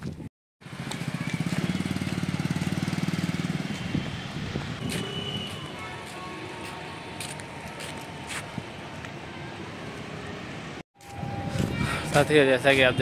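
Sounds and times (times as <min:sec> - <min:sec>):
motorcycle engine running: 0:00.6 - 0:05.1
background traffic noise: 0:00.6 - 0:13.0.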